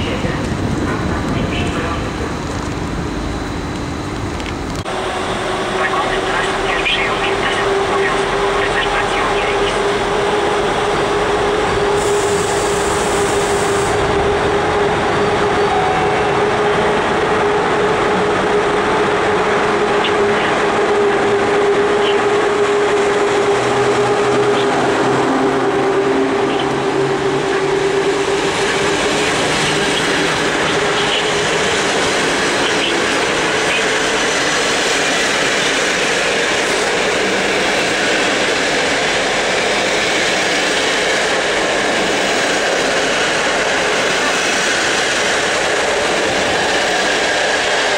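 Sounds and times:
electric locomotive whine: 0.0s - 47.9s
train wheels rolling on rails: 0.0s - 47.9s.

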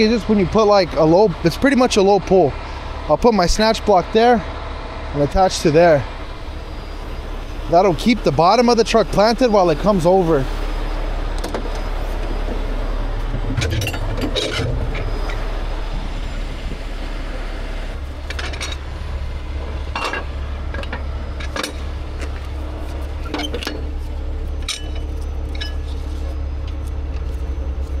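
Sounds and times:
truck engine running: 0.0s - 28.0s
metal chain clinks and clanks: 24.5s - 26.0s.

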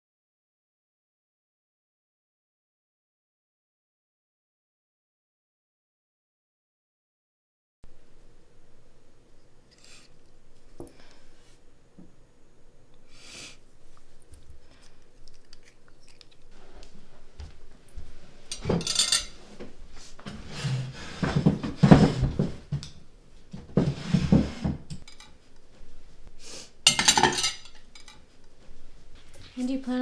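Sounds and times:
plates and cutlery clinking: 18.4s - 22.4s, 23.8s - 25.4s, 26.9s - 28.3s.

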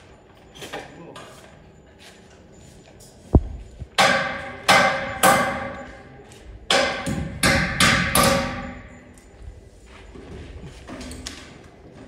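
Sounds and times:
hammer striking steel: 3.9s - 6.0s, 6.7s - 9.0s.

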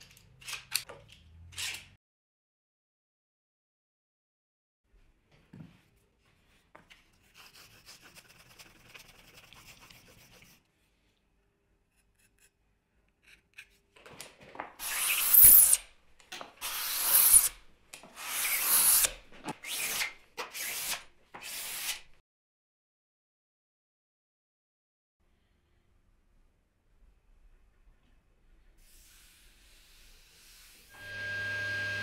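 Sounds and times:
hand plane cutting wood: 14.8s - 15.8s, 16.5s - 22.1s.

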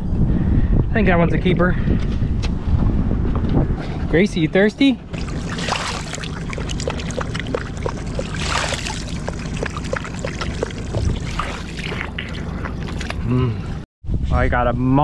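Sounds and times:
dog lapping water: 5.1s - 13.2s
hand splashing water: 5.1s - 13.2s
water dripping: 5.1s - 13.2s.

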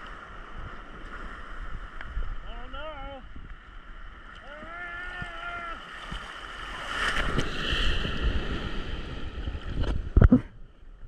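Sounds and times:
wind on microphone: 0.0s - 11.0s
sea water sloshing: 3.6s - 10.2s.

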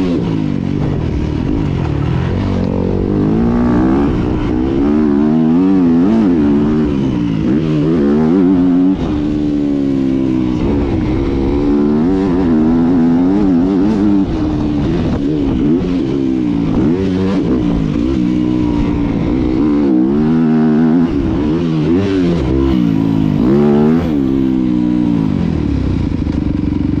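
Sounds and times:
motocross bike engine revving: 0.0s - 27.0s.

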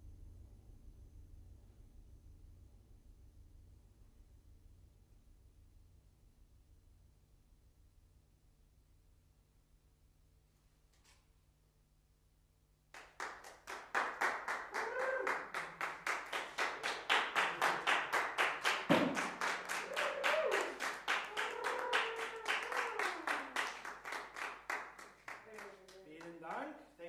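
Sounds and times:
audience clapping: 12.9s - 26.7s
voices calling out: 19.4s - 23.9s.

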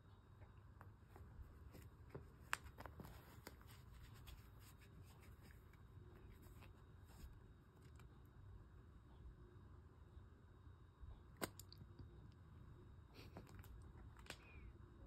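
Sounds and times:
cat scratching carpet: 0.6s - 8.2s.

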